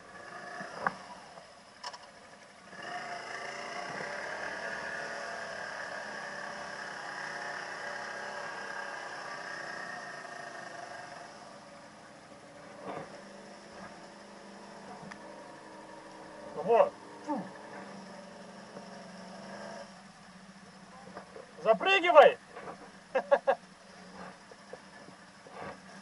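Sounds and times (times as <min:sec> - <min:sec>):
quad engine revving: 0:00.0 - 0:20.1.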